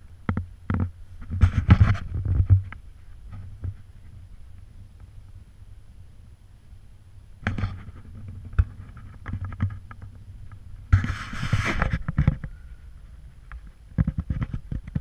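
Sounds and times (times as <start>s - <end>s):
rubbing rustle: 1.1s - 4.4s, 7.4s - 15.0s.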